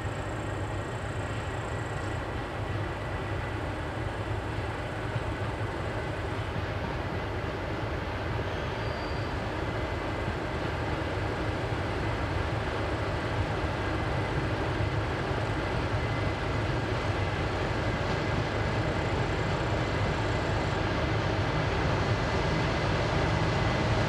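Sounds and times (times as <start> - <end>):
diesel locomotive engine: 0.0 - 24.0.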